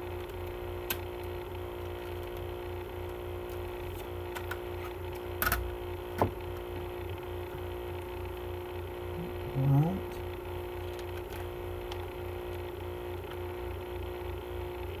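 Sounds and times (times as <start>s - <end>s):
low electrical hum: 0.0s - 15.0s
plastic cd case clicking: 0.2s - 6.7s, 10.8s - 12.0s.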